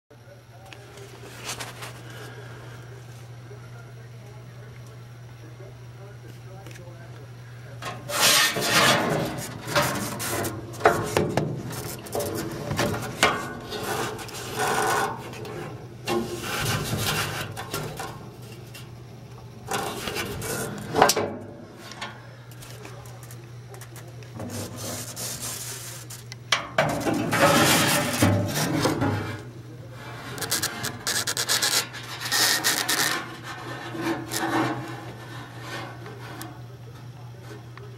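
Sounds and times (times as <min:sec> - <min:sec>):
steady low hum: 0:00.1 - 0:37.9
scraping on sheet metal: 0:07.8 - 0:18.9, 0:19.7 - 0:22.2, 0:24.4 - 0:36.6.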